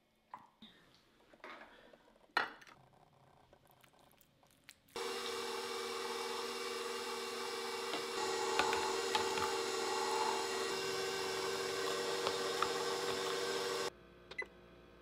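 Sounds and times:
mixer motor humming: 0:05.0 - 0:13.9.

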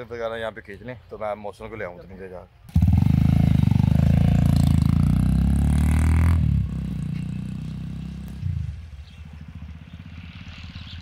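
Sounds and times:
motorcycle engine accelerating: 0:02.7 - 0:11.0.

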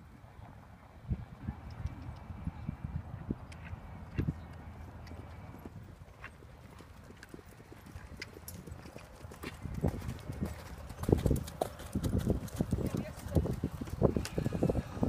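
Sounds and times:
horse hoofbeats on sand: 0:05.2 - 0:14.5.

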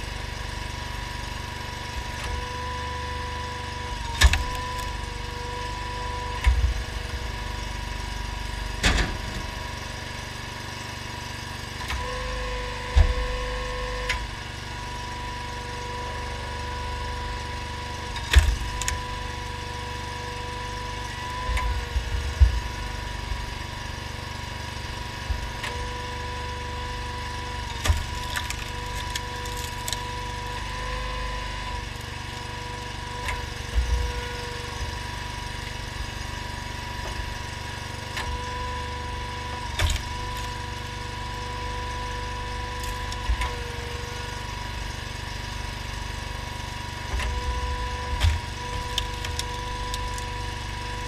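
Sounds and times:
engine running steadily: 0:00.0 - 0:51.0
hydraulic whine: 0:00.0 - 0:51.0
logs cracking and splitting: 0:04.2 - 0:05.1, 0:20.8 - 0:31.2, 0:47.2 - 0:51.0.

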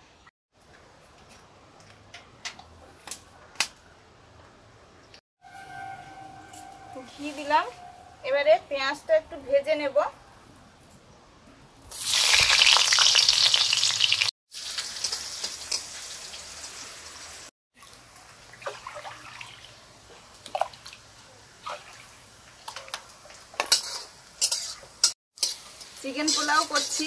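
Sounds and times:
onions sizzling in hot oil: 0:11.9 - 0:17.5, 0:22.2 - 0:27.0.

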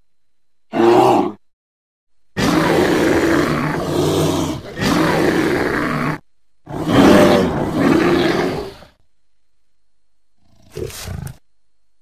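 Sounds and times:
deep animal roars: 0:00.7 - 0:01.4, 0:02.4 - 0:09.0.

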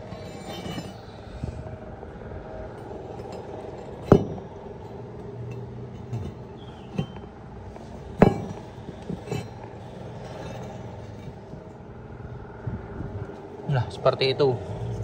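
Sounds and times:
sharp metallic clinks: 0:00.0 - 0:01.5
workshop hum: 0:00.0 - 0:15.0.

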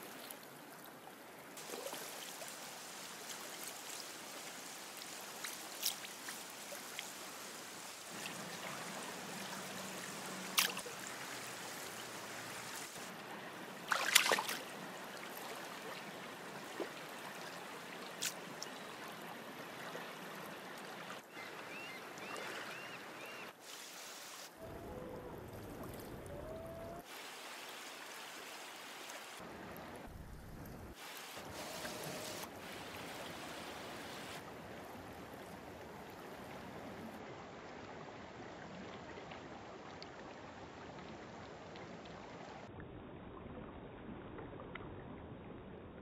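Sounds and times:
river water rushing: 0:00.0 - 0:30.1, 0:31.0 - 0:37.2.

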